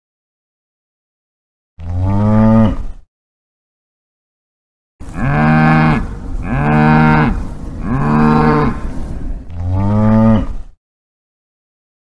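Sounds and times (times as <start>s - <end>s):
cow mooing: 1.8s - 2.9s, 5.0s - 9.0s, 9.6s - 10.6s.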